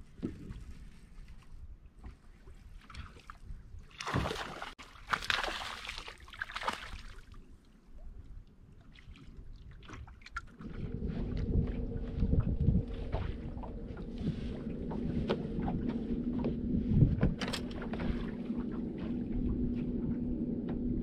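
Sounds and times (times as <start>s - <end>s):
wind: 0.0s - 21.0s
water lapping: 2.0s - 21.0s
low steady hum: 10.5s - 21.0s.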